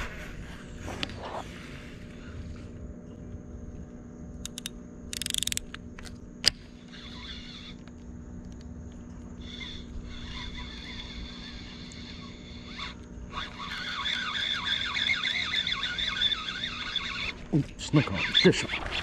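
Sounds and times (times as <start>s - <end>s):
faint steady hum: 0.0s - 19.0s
fishing reel clicks: 4.4s - 5.8s, 9.5s - 17.3s.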